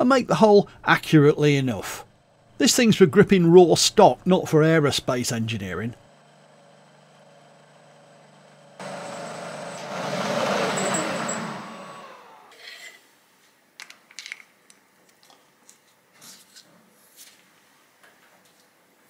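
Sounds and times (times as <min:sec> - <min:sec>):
drill motor whining: 0:06.1 - 0:12.6.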